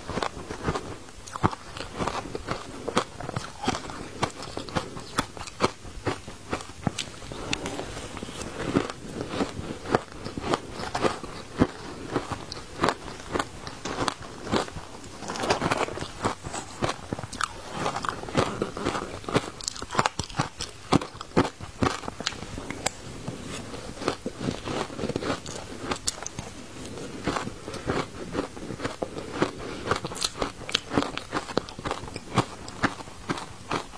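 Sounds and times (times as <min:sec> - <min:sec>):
shaved ice being chewed: 0:00.0 - 0:33.9.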